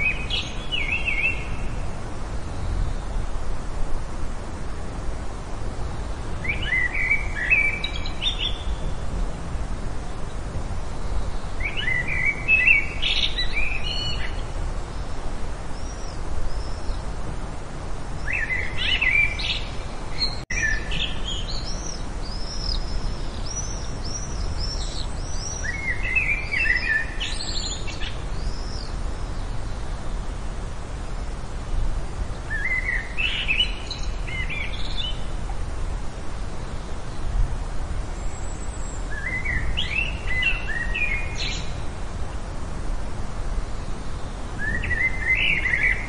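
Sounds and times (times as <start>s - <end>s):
songbirds warbling: 0.0s - 3.3s, 5.9s - 9.1s, 10.1s - 30.3s, 32.2s - 37.4s, 38.1s - 42.5s, 43.6s - 46.0s.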